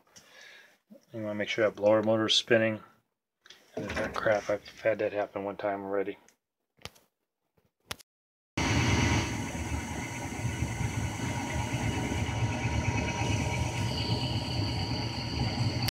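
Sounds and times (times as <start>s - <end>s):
gas furnace rumbling: 8.6s - 15.9s
thin high whine: 8.6s - 15.9s.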